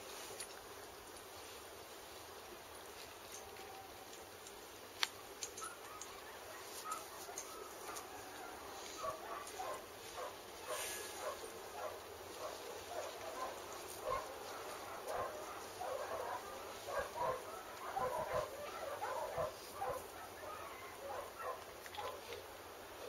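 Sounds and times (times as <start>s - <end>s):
dogs barking faintly: 5.3s - 23.0s.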